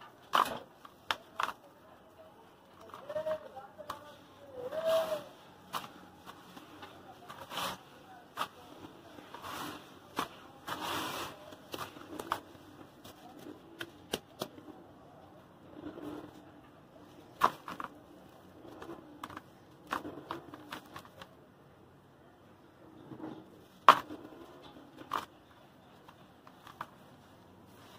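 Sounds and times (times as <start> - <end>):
hands kneading wet cement mix: 0.2 - 14.8.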